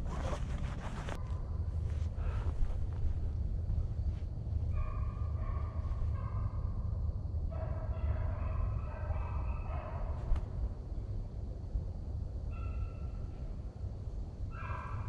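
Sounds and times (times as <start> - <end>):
hounds baying: 7.5 - 10.3.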